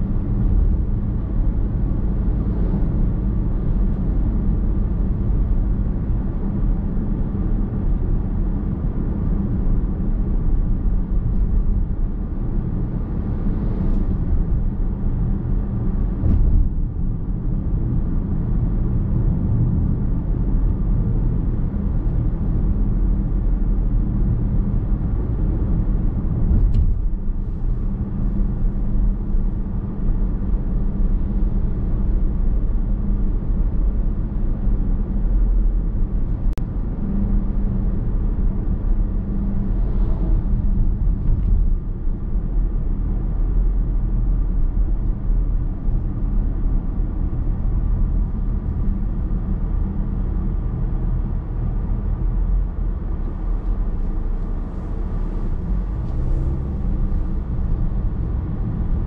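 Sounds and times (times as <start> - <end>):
low engine hum: 0.0 - 59.0.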